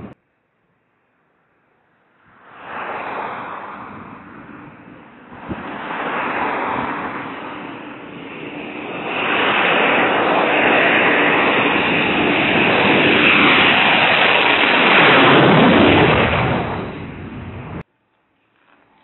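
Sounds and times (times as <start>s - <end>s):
jet engines roaring overhead: 2.0s - 17.9s.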